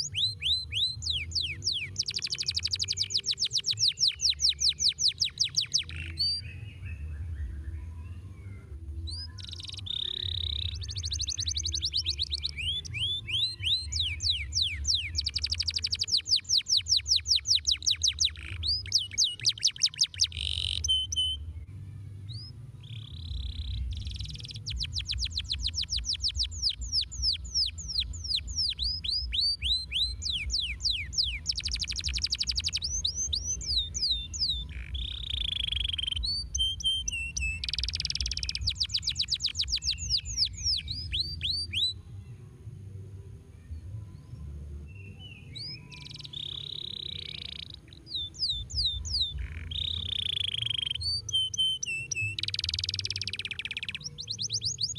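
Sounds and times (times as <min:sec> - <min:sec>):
canary singing trills: 0:00.0 - 0:21.6, 0:22.3 - 0:42.0, 0:44.0 - 0:54.9
steady low rumble: 0:21.0 - 0:45.2.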